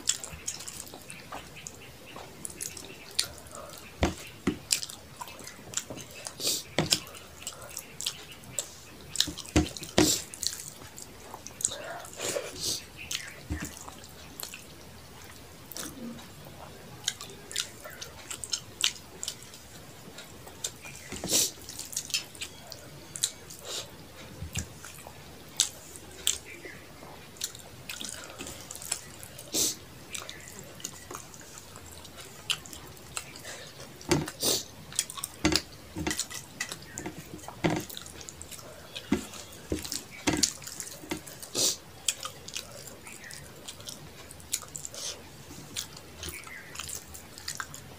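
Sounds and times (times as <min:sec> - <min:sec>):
fingers kneading food on plate: 0:00.0 - 0:11.8, 0:30.2 - 0:34.4, 0:35.0 - 0:42.7
chewing: 0:00.0 - 0:47.9.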